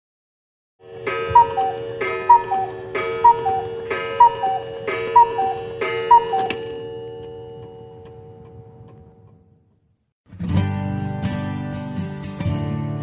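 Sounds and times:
two-note metallic ring: 0.8 - 8.4
clock ticking: 1.0 - 9.3.

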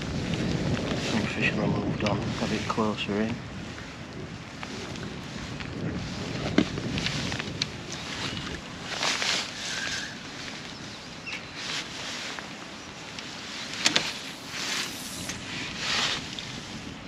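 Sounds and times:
rustling swishes: 7.1 - 17.0
low rumble: 13.4 - 17.0.

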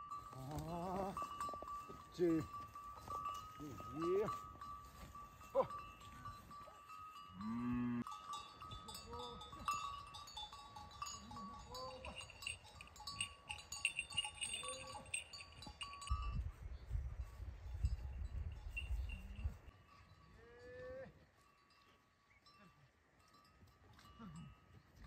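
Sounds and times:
cowbells clinking and jangling: 0.0 - 25.0
cow mooing: 7.4 - 8.1.

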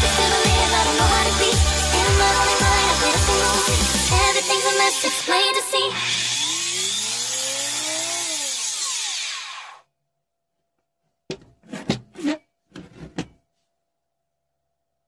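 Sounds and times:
router motor whine: 2.1 - 9.8.

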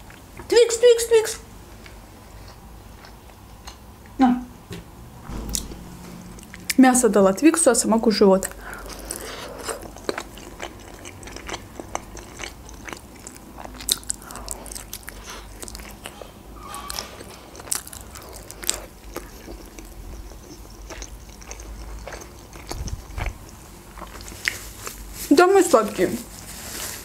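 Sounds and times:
biting and chewing food: 8.5 - 16.2, 16.8 - 25.1.

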